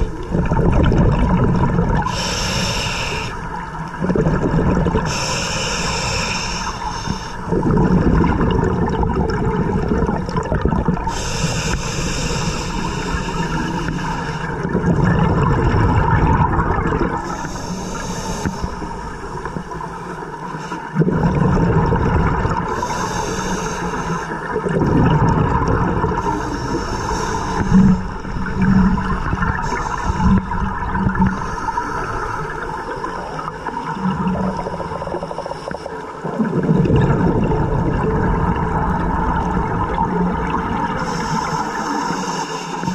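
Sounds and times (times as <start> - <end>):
bubbling of exhaled air: 0.0 - 42.9
hissing regulator inhalations: 2.0 - 3.9, 5.0 - 7.7, 11.0 - 14.7, 17.2 - 21.0, 22.6 - 24.6, 26.1 - 36.2, 40.9 - 42.9.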